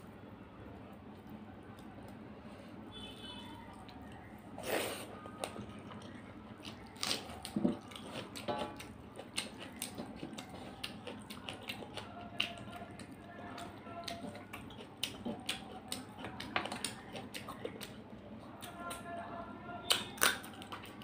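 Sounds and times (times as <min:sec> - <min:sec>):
wet chewing and lip smacks: 0:03.8 - 0:18.0.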